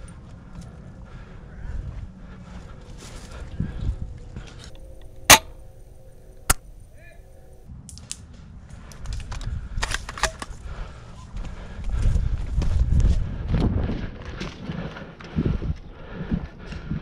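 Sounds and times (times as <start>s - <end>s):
airsoft gun shots: 5.3s - 5.6s.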